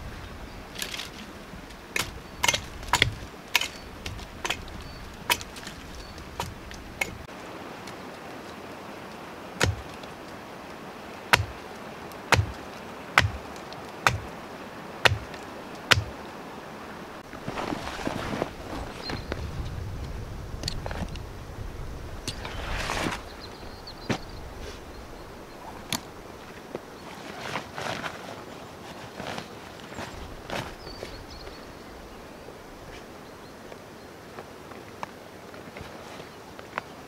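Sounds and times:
hatchet chopping wood: 0:02.0 - 0:07.2, 0:09.6 - 0:10.0, 0:11.3 - 0:11.6, 0:12.3 - 0:14.3, 0:15.0 - 0:16.1.

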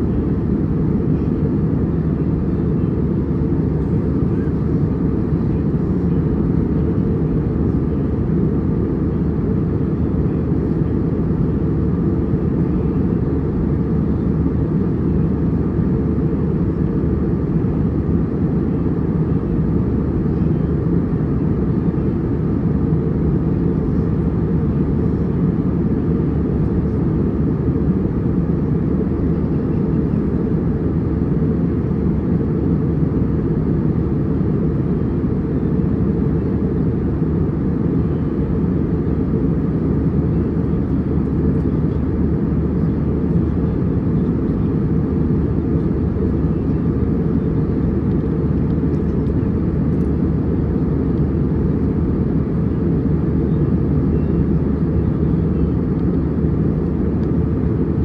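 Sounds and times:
airliner cabin rumble: 0:00.0 - 0:58.0.

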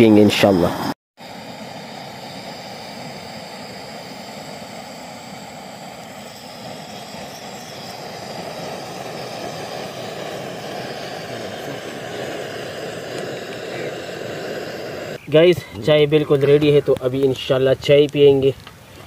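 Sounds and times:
gas stove burner rushing: 0:00.6 - 0:15.2.

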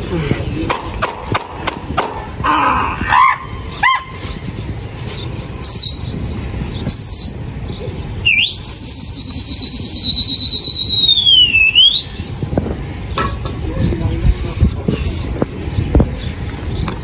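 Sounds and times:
loud high whistle: 0:08.2 - 0:12.2.

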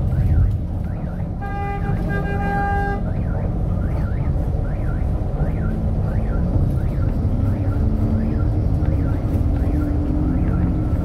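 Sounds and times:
bus engine and road noise: 0:00.0 - 0:11.0
vehicle horn: 0:01.4 - 0:03.1
electronic siren whooping: 0:03.0 - 0:11.0.

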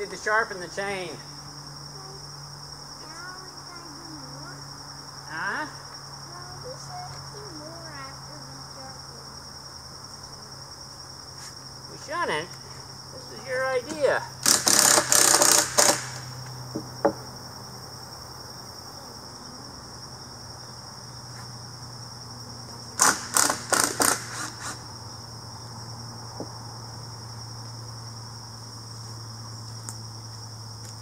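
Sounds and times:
insects trilling: 0:00.0 - 0:31.0
cordless drill driving screws: 0:14.4 - 0:16.2, 0:23.0 - 0:24.8.

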